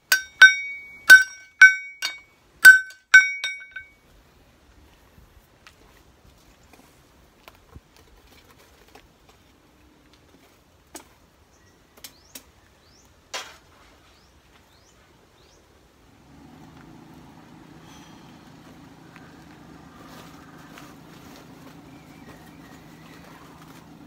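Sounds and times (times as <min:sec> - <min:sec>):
metallic tool clinks: 0:00.0 - 0:03.9
bird chirps: 0:21.7 - 0:23.8.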